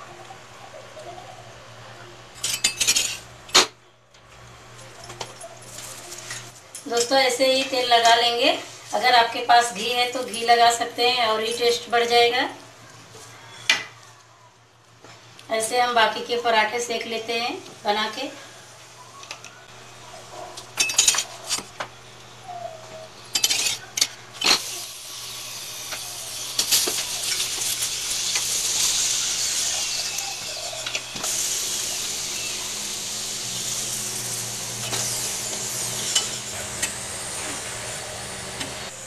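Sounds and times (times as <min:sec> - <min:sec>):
metal spoon scraping a griddle: 0:23.3 - 0:24.9, 0:25.8 - 0:32.5, 0:34.8 - 0:37.7
oil sizzling: 0:23.4 - 0:39.0.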